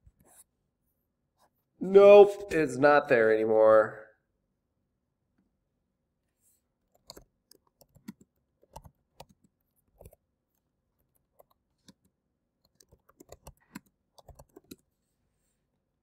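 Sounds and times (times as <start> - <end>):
typing on computer keyboard: 7.0 - 10.2, 11.0 - 14.8.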